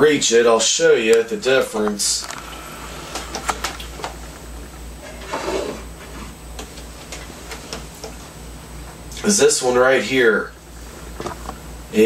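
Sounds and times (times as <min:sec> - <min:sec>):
steady low hum: 0:00.0 - 0:12.0
rustling scrape: 0:05.0 - 0:06.4.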